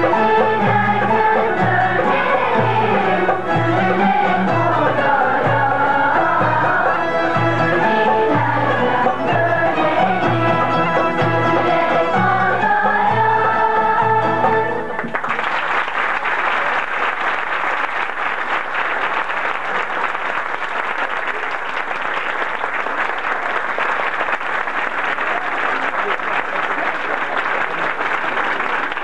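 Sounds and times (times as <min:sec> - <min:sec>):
audience applauding: 0:14.9 - 0:29.0.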